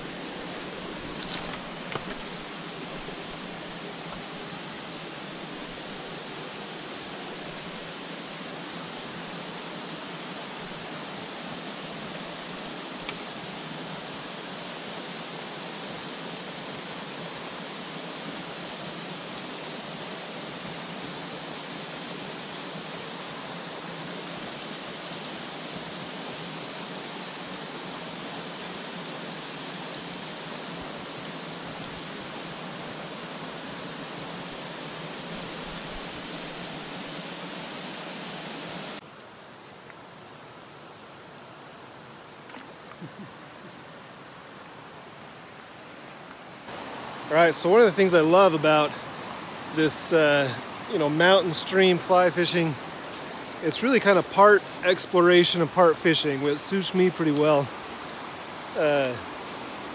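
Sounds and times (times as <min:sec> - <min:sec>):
stream rushing over rocks: 0:00.0 - 0:59.9.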